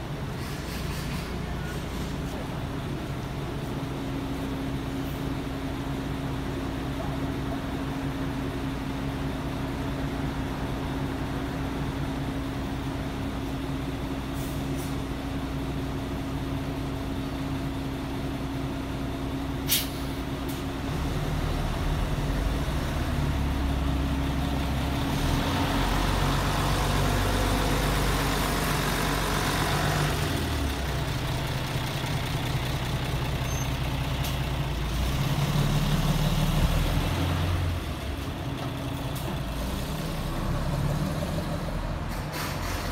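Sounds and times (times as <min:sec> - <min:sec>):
bus engine: 0:00.0 - 0:42.9.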